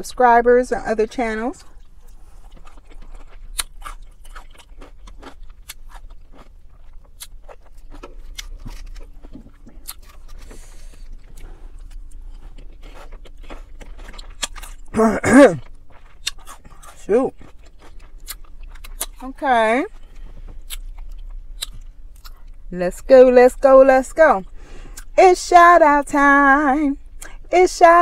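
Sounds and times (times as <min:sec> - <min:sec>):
chewing with wet mouth clicks: 0:01.6 - 0:15.0, 0:15.6 - 0:19.2, 0:19.9 - 0:22.7.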